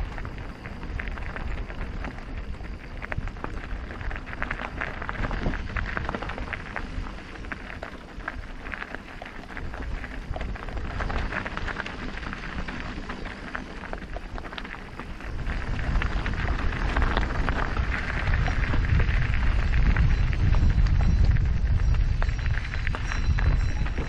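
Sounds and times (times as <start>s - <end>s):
bike tyres crunching on gravel: 0.0s - 24.0s
low rumble: 15.2s - 24.0s.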